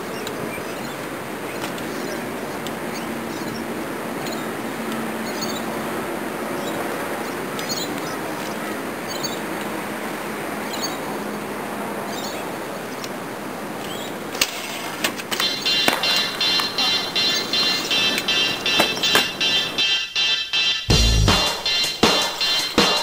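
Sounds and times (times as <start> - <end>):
outdoor background noise: 0.0 - 23.0
music with a beat: 15.4 - 23.0.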